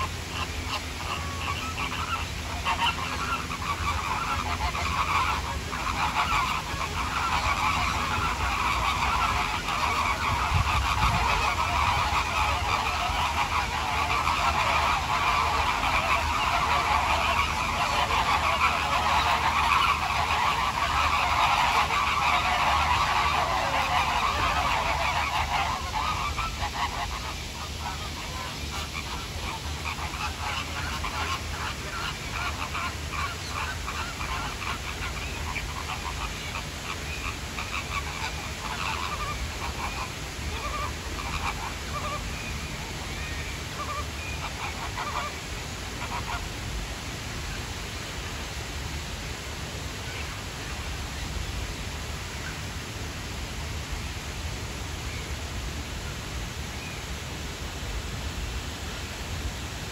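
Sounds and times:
flamingo flock calling: 0.0 - 46.6.

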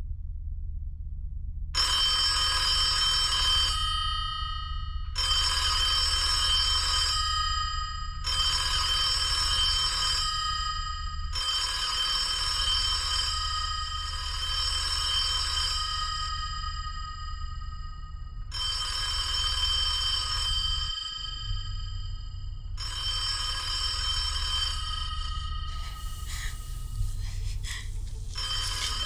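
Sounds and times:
low steady hum: 0.0 - 29.0
payphone bell ringing: 28.3 - 29.0.

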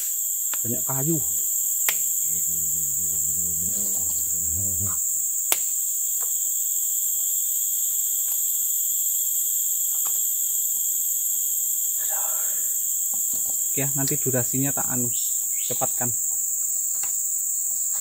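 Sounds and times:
insects buzzing chorus: 0.1 - 5.8.

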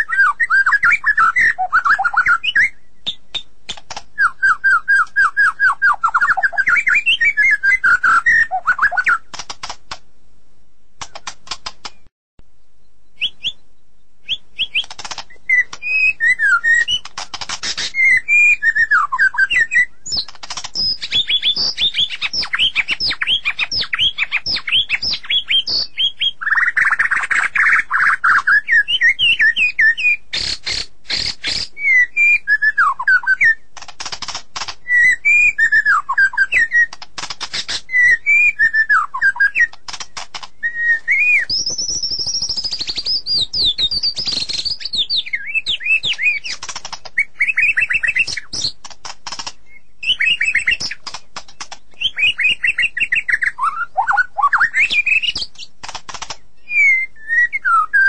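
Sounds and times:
songbird singing chirps and whistles: 0.0 - 10.0, 11.0 - 58.0
bird's dry clicking rattles: 3.0 - 4.2, 9.3 - 10.0, 11.0 - 12.1, 14.6 - 16.0, 16.6 - 18.1, 20.1 - 25.8, 33.8 - 35.0, 36.5 - 38.1, 39.6 - 40.6, 41.5 - 52.8, 54.8 - 56.5.

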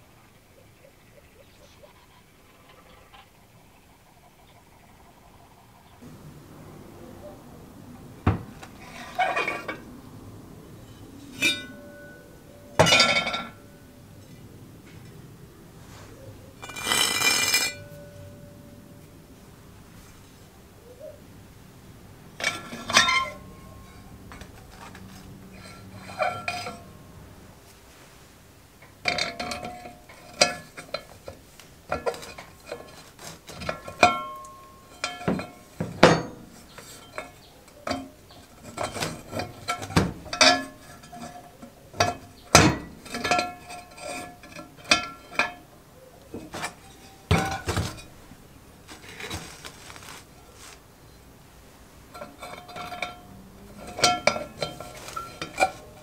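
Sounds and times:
metal handle clinking on pot: 11.3 - 13.8, 16.6 - 18.6, 22.4 - 26.9, 28.8 - 45.7, 46.3 - 48.1, 52.1 - 56.0.

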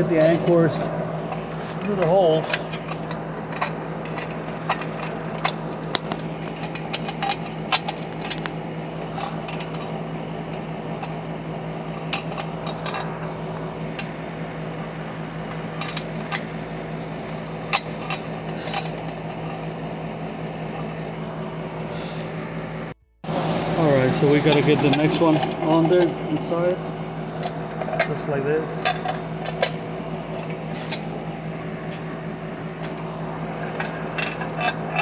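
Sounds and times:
machine hum: 0.0 - 35.0.

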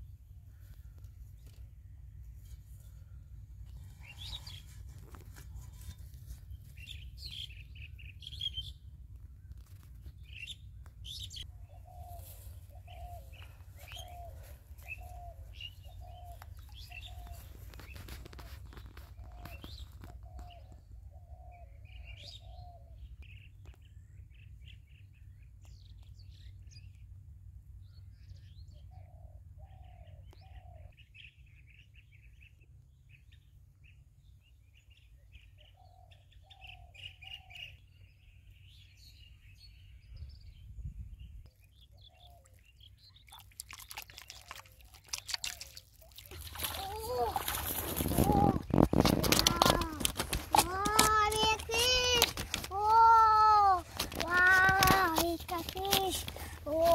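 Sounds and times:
lower bird calls: 6.7 - 23.8, 35.2 - 56.9
birds chirping: 10.1 - 23.5, 35.0 - 56.9.

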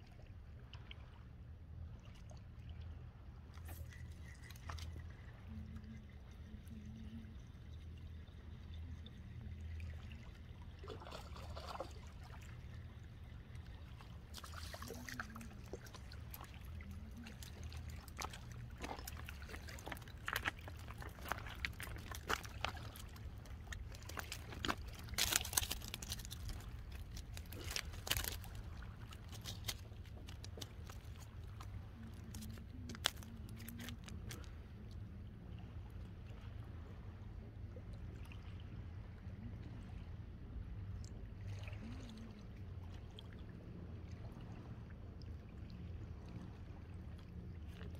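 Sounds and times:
steady low rumble: 0.0 - 47.9
water splashing and trickling: 0.0 - 47.9.

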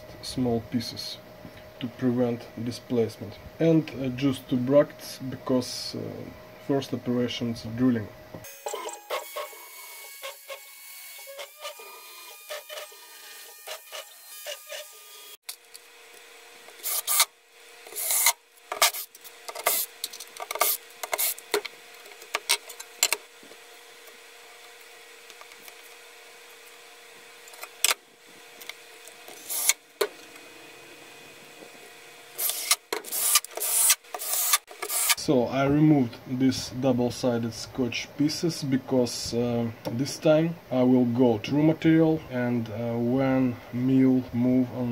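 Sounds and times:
router spindle high whine: 8.4 - 15.4
cordless drill driving screws: 29.3 - 29.8, 32.4 - 35.2.

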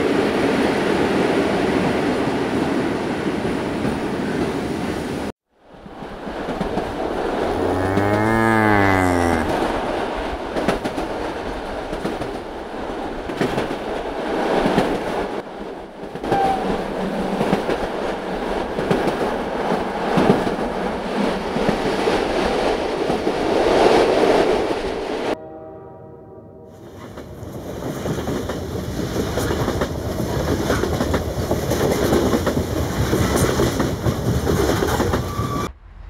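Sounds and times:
train rumbling and clattering: 0.0 - 5.3, 5.9 - 8.1, 9.5 - 25.4, 26.8 - 36.0
cow mooing: 7.5 - 9.6.

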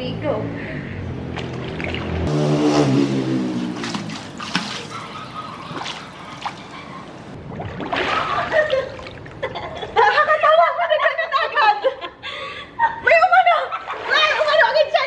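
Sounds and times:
small splashes and drips: 1.3 - 2.2, 3.6 - 6.8
pool water lapping: 1.3 - 2.3, 3.3 - 10.2, 13.3 - 15.0.

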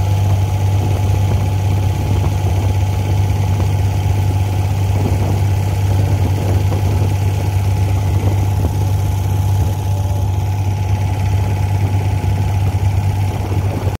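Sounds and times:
boat diesel engine droning: 0.0 - 14.0.

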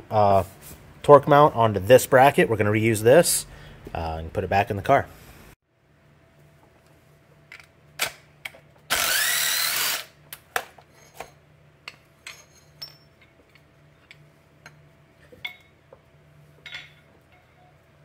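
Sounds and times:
cordless impact wrench: 8.9 - 10.2
metal parts and tools clinking: 10.8 - 15.8, 16.6 - 17.8.

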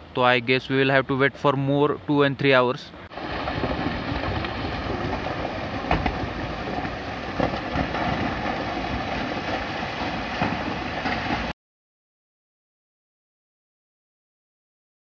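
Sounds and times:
rocks tumbling down a slope: 3.1 - 11.5
stones cracking: 3.2 - 9.8.

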